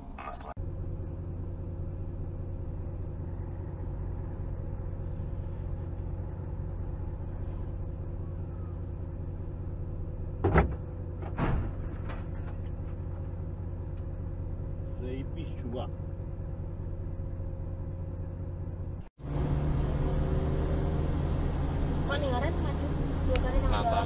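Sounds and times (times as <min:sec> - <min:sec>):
vehicle engine idling: 0:00.0 - 0:24.0
truck hitting vehicle bangs: 0:10.4 - 0:13.4.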